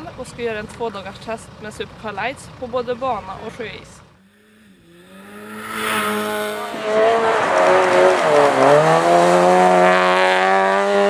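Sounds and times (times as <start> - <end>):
rally car engine revving hard: 4.8 - 11.0.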